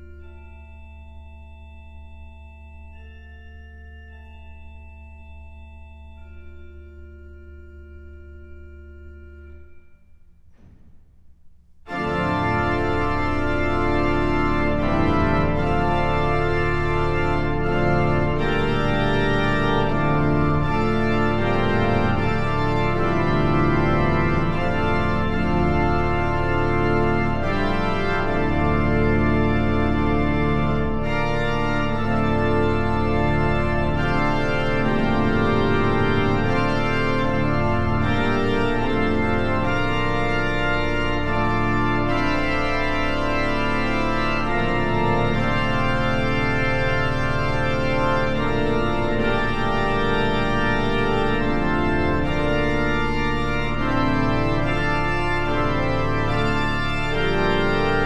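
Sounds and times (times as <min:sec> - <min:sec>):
pipe organ chords: 0:00.0 - 0:10.9, 0:11.8 - 0:58.0.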